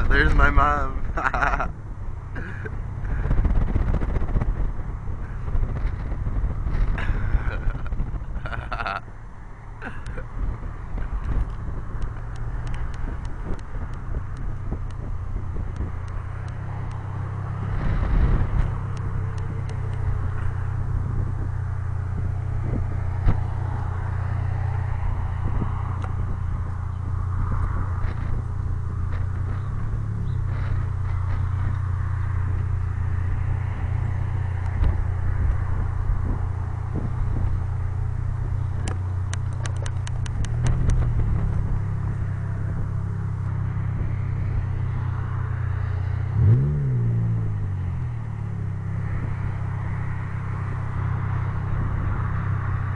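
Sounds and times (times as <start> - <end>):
car engine droning: 0.0 - 52.9
road and wind noise: 0.0 - 52.9
quick run of clicks: 38.8 - 41.0.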